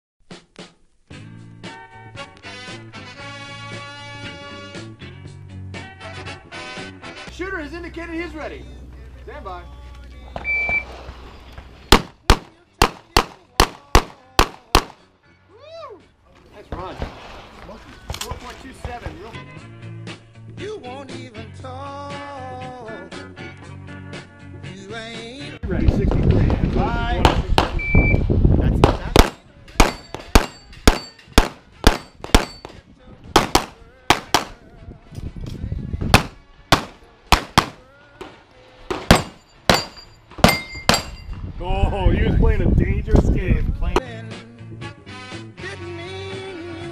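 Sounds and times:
shot timer beep: 10.4s - 10.9s, 27.8s - 28.2s
pistol shots: 11.9s - 15.0s, 28.8s - 32.8s, 33.4s - 34.6s, 36.1s - 37.8s, 38.9s - 41.1s
steel plates ringing when hit: 29.8s - 31.3s, 39.1s - 41.3s.

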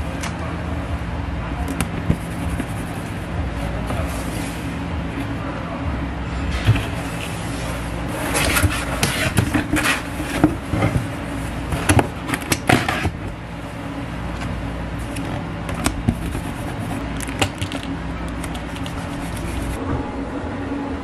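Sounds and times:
steady low hum: 0.0s - 21.0s
cardboard box rustling and tapping: 15.7s - 17.8s.

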